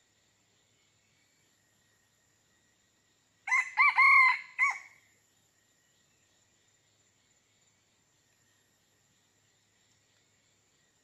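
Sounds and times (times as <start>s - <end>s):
faint high insect drone: 0.0s - 11.0s
rooster crowing: 3.5s - 5.0s.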